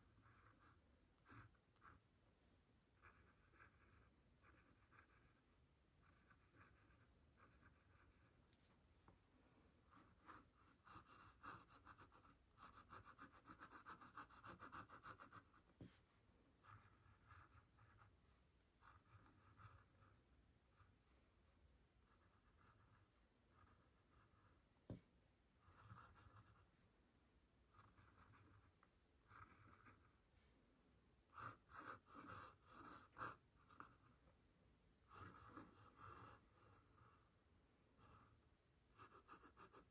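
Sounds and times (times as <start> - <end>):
pen nib scratching on paper: 0.0 - 2.0, 3.0 - 8.6, 9.9 - 25.0, 25.6 - 26.8, 27.7 - 30.2, 31.3 - 34.2, 35.0 - 37.3, 38.0 - 39.9.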